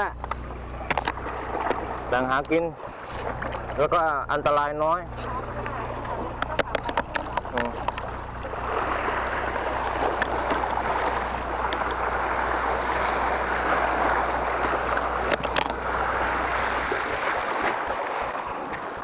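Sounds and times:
low hum: 0.0 - 19.0
sea waves washing against rocks: 5.3 - 19.0.

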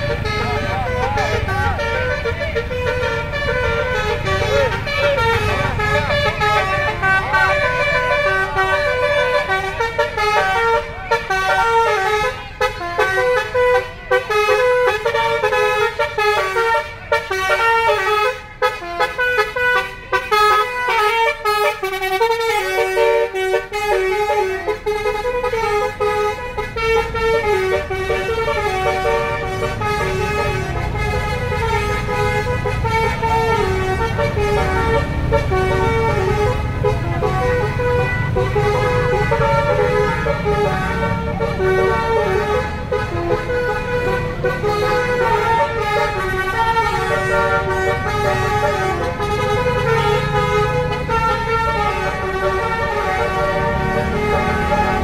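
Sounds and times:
bus engine rumble: 0.0 - 55.0
musical air horn tune: 0.0 - 55.0.

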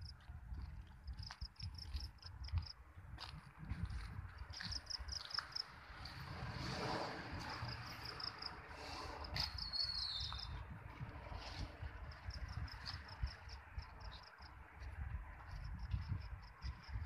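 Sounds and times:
wind rumble on microphone: 0.0 - 17.0
insects chirping: 4.4 - 10.6, 12.0 - 14.6.

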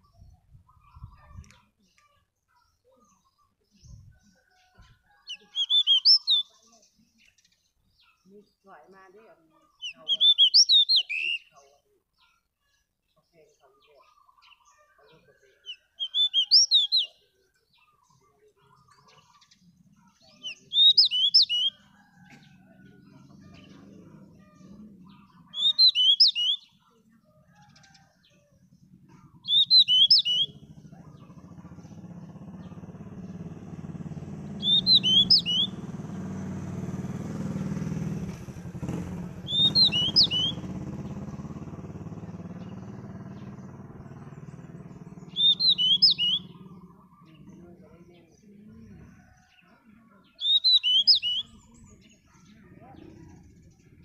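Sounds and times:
bird whistling song: 5.2 - 6.6, 9.8 - 11.5, 15.7 - 17.2, 20.4 - 22.6, 25.2 - 26.8, 29.4 - 31.5, 34.5 - 35.8, 38.8 - 41.2, 44.9 - 47.2, 50.3 - 51.8
low engine rumble: 21.5 - 25.7, 27.8 - 49.4.

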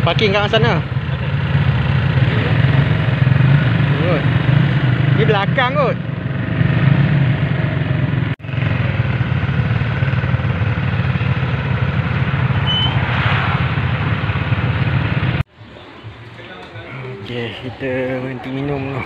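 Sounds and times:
motorcycle engine running: 0.0 - 15.4
wind and road noise: 6.0 - 15.5.

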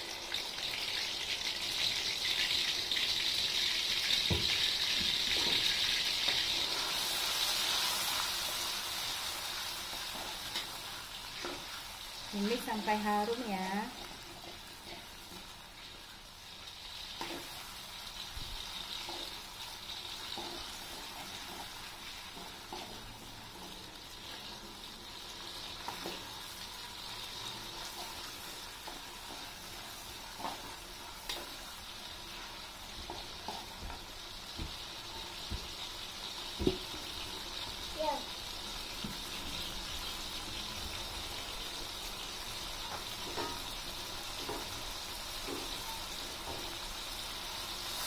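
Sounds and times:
paste sizzling in oil: 0.0 - 48.0.

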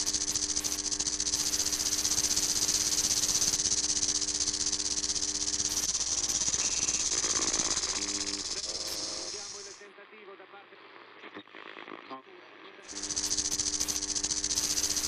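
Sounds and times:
loud hiss with rattling flutter: 0.0 - 9.8, 12.9 - 15.0.

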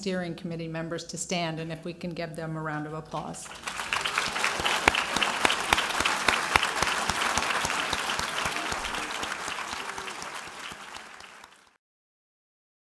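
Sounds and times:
audience applauding: 3.4 - 11.8.

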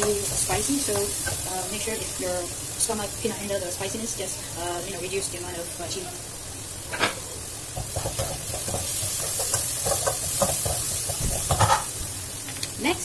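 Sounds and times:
sizzle of frying in oil: 0.0 - 13.0
spatula scraping a wok: 7.8 - 12.0.

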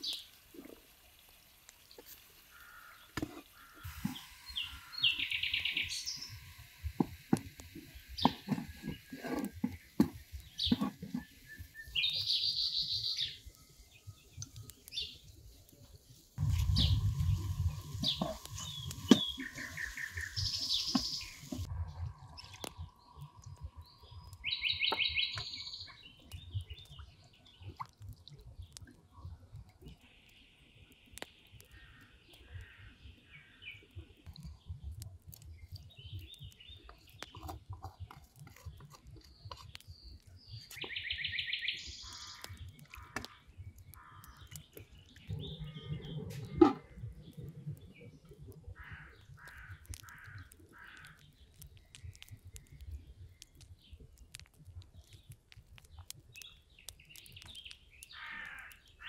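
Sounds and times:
small songbirds chirping: 0.0 - 59.0
wooden spoon scraping frying pan: 8.2 - 11.4
bird chirping trill: 23.8 - 26.8.

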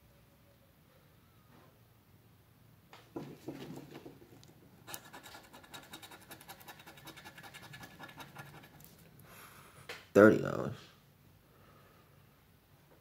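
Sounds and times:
coin scraping a scratch card: 4.9 - 9.0.

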